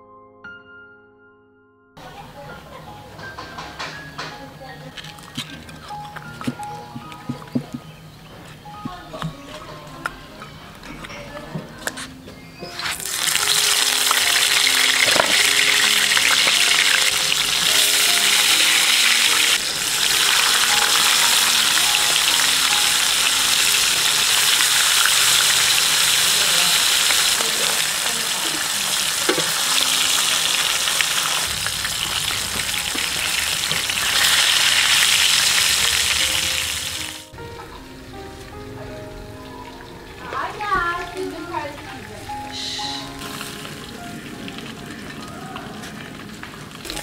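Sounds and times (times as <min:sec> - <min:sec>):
fish sizzling in hot oil: 0:12.7 - 0:47.0.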